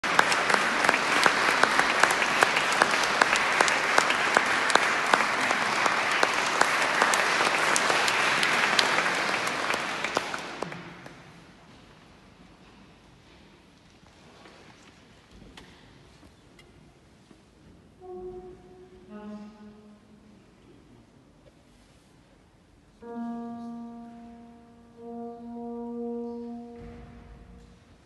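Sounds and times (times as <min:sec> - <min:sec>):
audience applauding: 0:00.0 - 0:11.2
sharp claps close by: 0:00.0 - 0:11.2.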